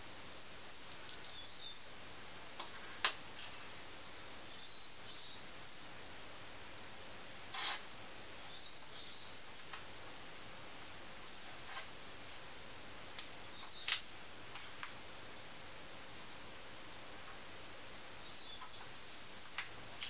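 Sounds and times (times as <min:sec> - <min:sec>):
steady hiss: 0:00.0 - 0:20.0
faint bird chirps: 0:00.4 - 0:02.1, 0:04.0 - 0:05.9, 0:08.4 - 0:09.8, 0:18.2 - 0:19.6.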